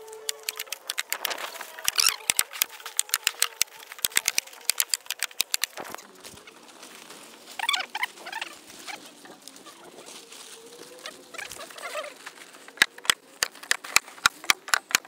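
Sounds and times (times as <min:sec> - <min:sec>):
plastic film crinkling: 0:00.1 - 0:07.8.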